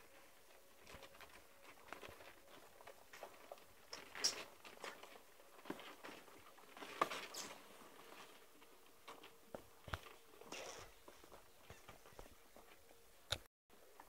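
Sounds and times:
puppies scuffling and scratching: 0:00.0 - 0:13.0.

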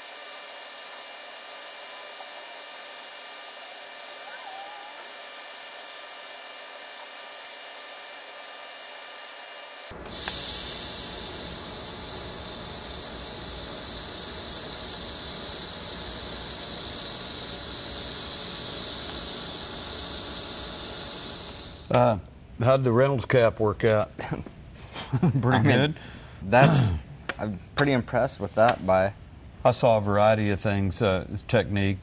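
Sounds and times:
welding arc hissing: 0:00.0 - 0:22.0.

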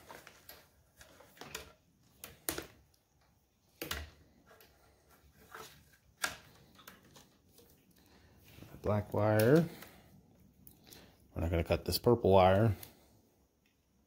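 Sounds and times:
wires and connectors clicking: 0:08.8 - 0:09.9.

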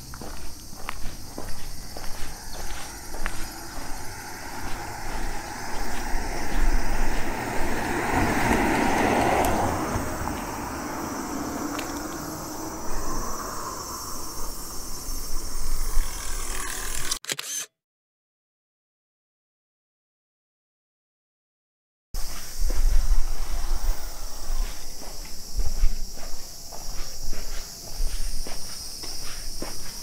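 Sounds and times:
motor vehicle passing by: 0:01.7 - 0:14.3.

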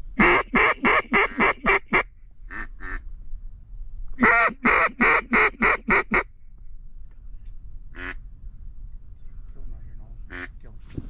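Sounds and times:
duck call raspy quacks: 0:00.2 - 0:03.0, 0:04.2 - 0:06.3, 0:08.0 - 0:08.2, 0:10.3 - 0:10.5.

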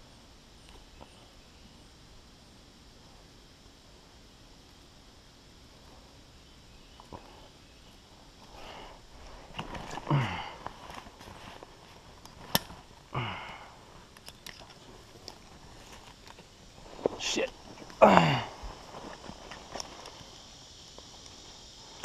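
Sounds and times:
man grunting: 0:10.1 - 0:10.6, 0:18.0 - 0:18.6.

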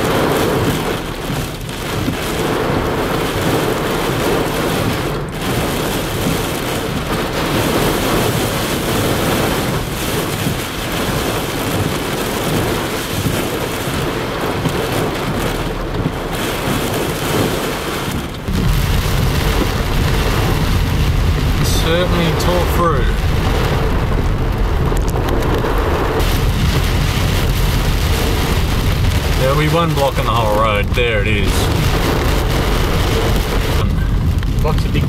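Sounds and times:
car engine and tyres rumbling: 0:00.0 - 0:35.0
heavy rain and wind on car: 0:00.0 - 0:35.0.

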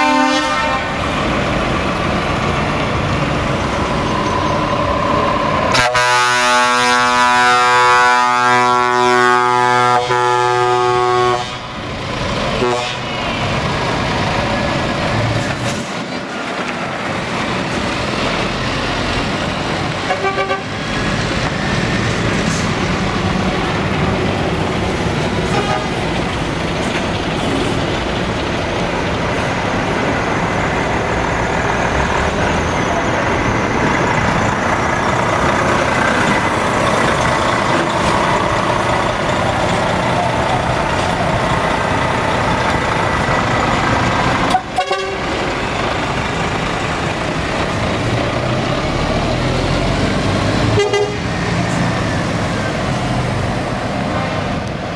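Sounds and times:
truck horn toots: 0:00.0 - 0:01.0, 0:05.7 - 0:11.6, 0:12.6 - 0:13.4, 0:20.0 - 0:20.8, 0:25.5 - 0:26.0, 0:44.5 - 0:45.4, 0:50.7 - 0:51.4
truck diesel engines running: 0:00.0 - 0:54.9.

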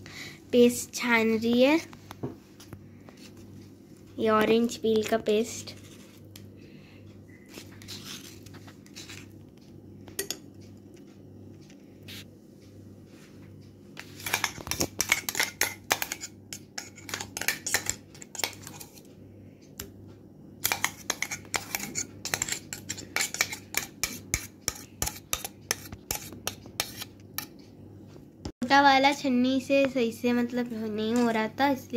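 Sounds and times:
spoon scraping tea strainer: 0:05.6 - 0:06.2, 0:07.5 - 0:09.3, 0:14.0 - 0:19.1, 0:20.6 - 0:27.5.

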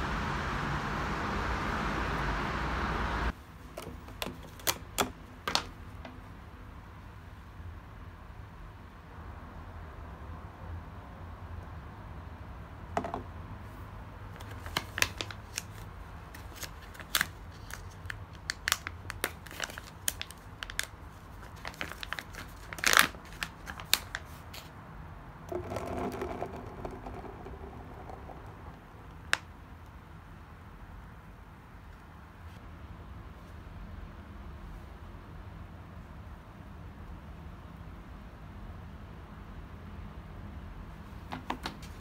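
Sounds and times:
packaging clicks and crinkling: 0:14.4 - 0:24.7.

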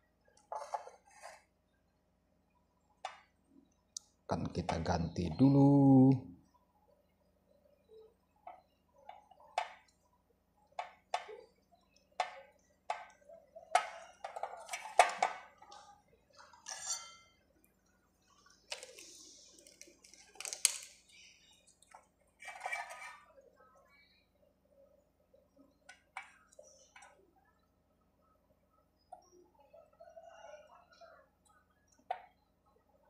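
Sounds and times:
scraping and rustling: 0:22.4 - 0:23.4.

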